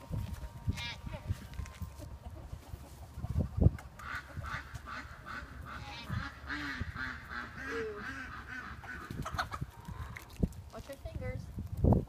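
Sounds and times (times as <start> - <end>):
ducks quacking: 0.7 - 10.3.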